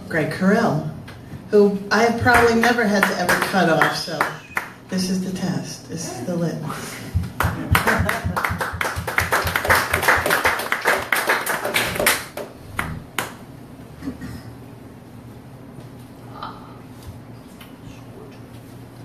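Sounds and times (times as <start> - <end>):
audience applauding: 7.2 - 13.3.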